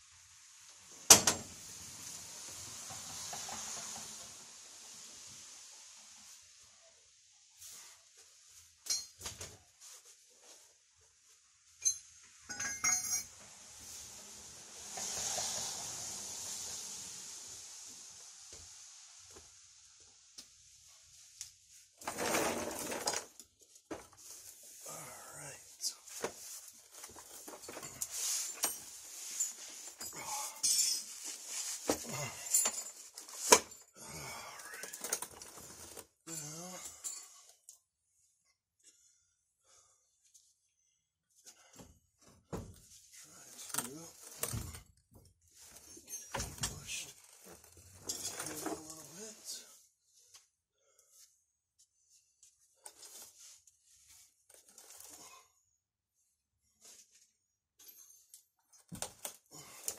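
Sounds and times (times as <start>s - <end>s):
steady hiss: 0.0s - 8.8s, 11.2s - 22.0s
metal tools clinking: 8.8s - 9.3s, 11.8s - 13.4s, 27.3s - 31.3s, 32.2s - 33.9s, 48.0s - 49.0s
metal parts clinking and knocking: 11.8s - 13.4s.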